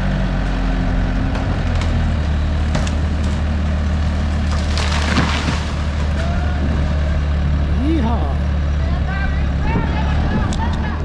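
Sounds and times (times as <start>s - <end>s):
loader engine running under load: 0.0s - 11.0s
tree trunk cracking and splintering: 0.4s - 6.6s.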